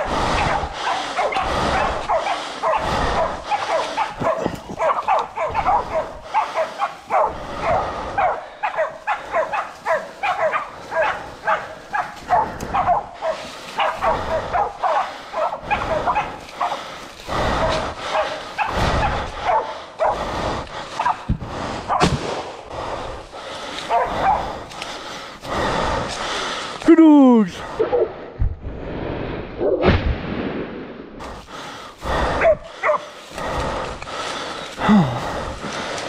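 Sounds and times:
dogs barking: 0.0 - 22.1, 23.4 - 26.4, 32.1 - 33.8.

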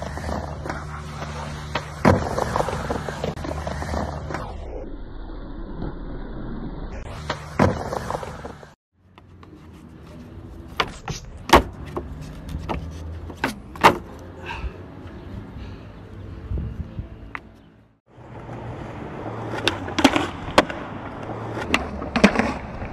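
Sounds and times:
skateboard wheels rolling on ramp: 0.0 - 8.8, 18.3 - 22.9.

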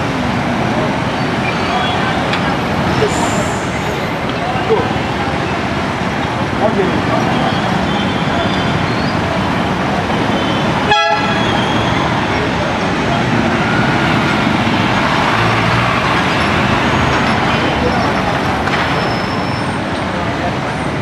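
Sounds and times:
background voices: 0.0 - 7.5
car horn toot: 10.8 - 11.8
motorcycle and car engines passing: 12.0 - 21.0.

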